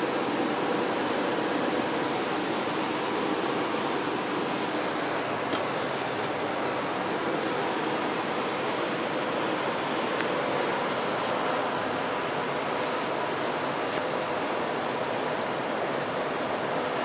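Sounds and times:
blower fan rushing air: 0:00.0 - 0:17.0.

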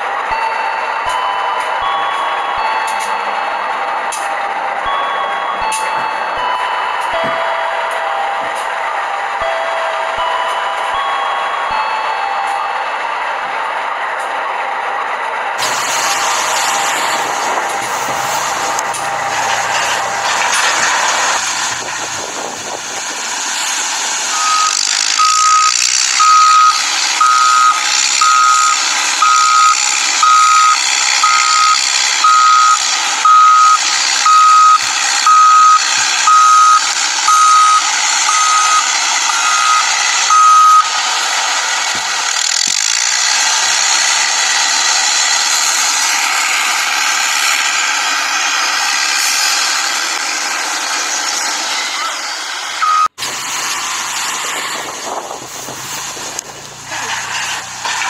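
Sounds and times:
electronic reversing alarm beeps: 0:04.1 - 0:12.8, 0:24.3 - 0:41.0, 0:52.8 - 0:53.2.

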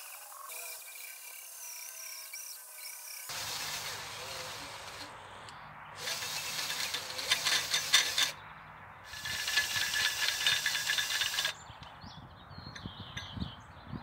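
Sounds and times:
cordless drill running: 0:03.3 - 0:05.1, 0:06.0 - 0:08.4, 0:09.1 - 0:11.5.

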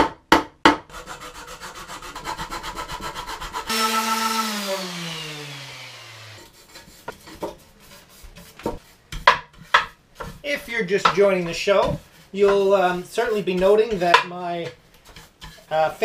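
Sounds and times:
hand file rasping on wood: 0:00.9 - 0:07.3.

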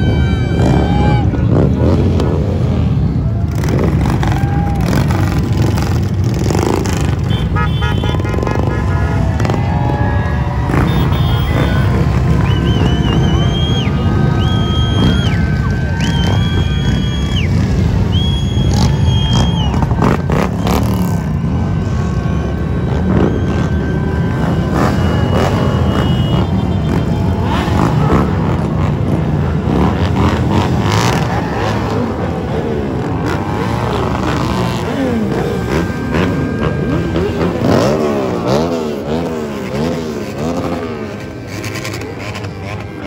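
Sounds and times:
high-pitched horn toots: 0:00.0 - 0:02.0, 0:06.8 - 0:09.6, 0:10.7 - 0:15.1, 0:16.2 - 0:32.0
motorcycle engines revving: 0:00.0 - 0:43.0
motorcycles riding past: 0:00.0 - 0:43.0.

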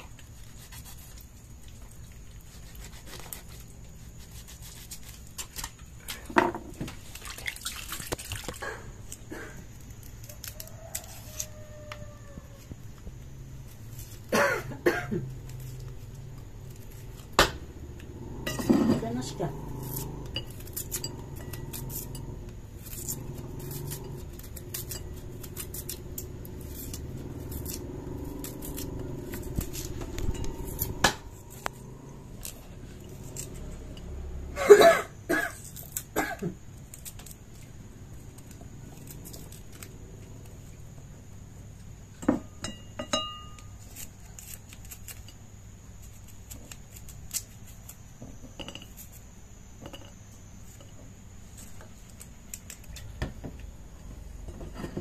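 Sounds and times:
low hum: 0:12.9 - 0:34.7
knife clinking on ceramic plate: 0:18.5 - 0:19.0, 0:42.3 - 0:43.6.

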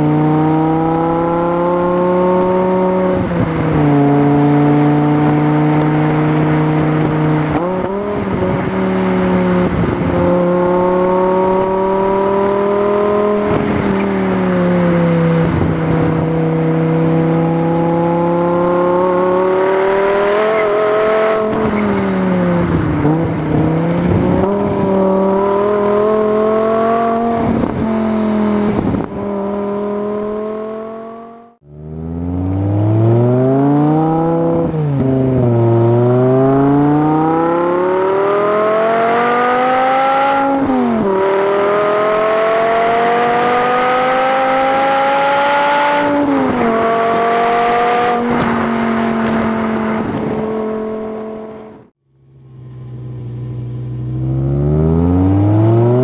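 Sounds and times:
car engine and exhaust shifting gears: 0:00.0 - 0:56.0.

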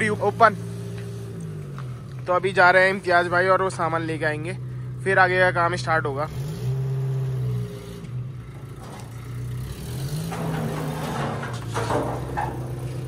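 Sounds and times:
car engine revving: 0:05.9 - 0:13.0.

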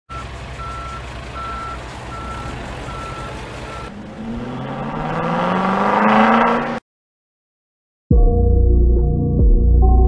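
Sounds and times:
vehicle reversing alarm beeping: 0:00.1 - 0:04.0
low engine rumble: 0:00.1 - 0:04.6
engine revving up: 0:00.6 - 0:06.8.

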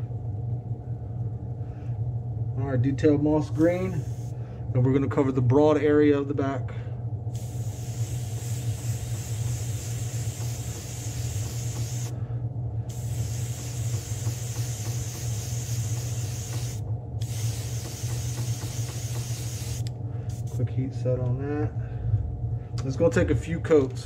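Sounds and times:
steady low hum: 0:00.0 - 0:24.0
airbrush spraying paint hiss: 0:03.6 - 0:04.4, 0:07.3 - 0:12.2, 0:12.9 - 0:20.6.

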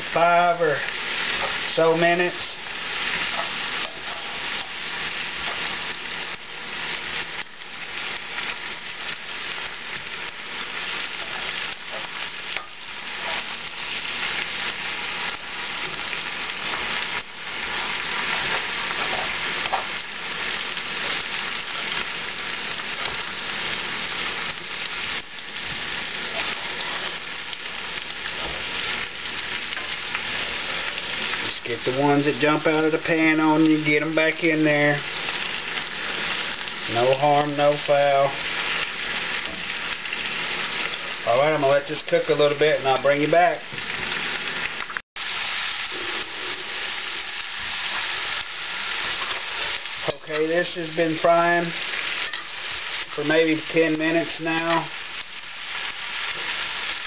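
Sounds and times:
food sizzling in a skillet: 0:00.0 - 0:57.0
spatula stirring food: 0:02.8 - 0:07.3, 0:45.8 - 0:55.1.

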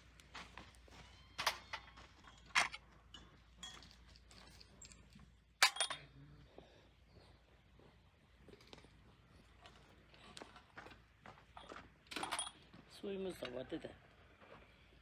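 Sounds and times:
metal tart molds clinking: 0:01.4 - 0:06.1, 0:12.1 - 0:12.7.

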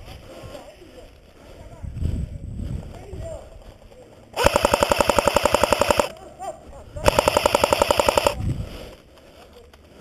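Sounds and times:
airsoft gun automatic bursts: 0:04.4 - 0:06.2, 0:07.0 - 0:08.4.

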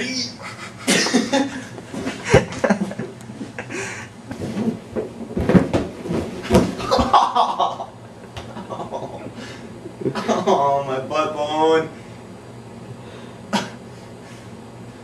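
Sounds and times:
thumps and knocks on floor: 0:04.3 - 0:07.1.

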